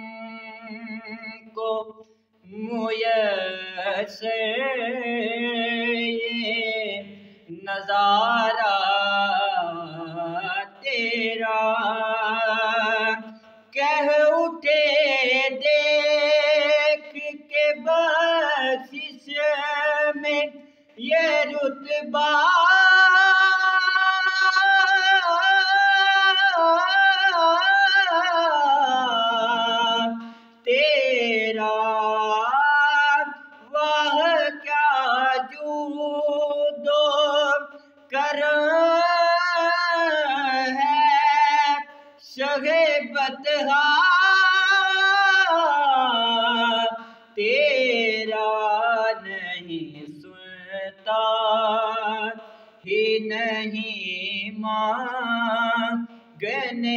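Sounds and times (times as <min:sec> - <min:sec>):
man chanting unaccompanied: 0:00.0 - 0:56.9
short breaths: 0:07.1 - 0:07.5, 0:13.3 - 0:13.7, 0:20.6 - 0:21.0, 0:30.2 - 0:30.6, 0:41.9 - 0:42.2, 0:47.0 - 0:47.4, 0:52.4 - 0:52.8, 0:56.1 - 0:56.4.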